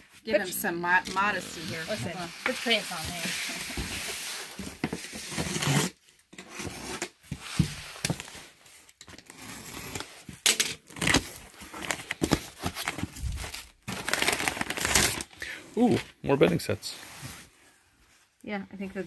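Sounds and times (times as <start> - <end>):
box cutter slicing packing tape: 5.2 - 7.1
cardboard flaps tearing and rustling: 10.9 - 15.3.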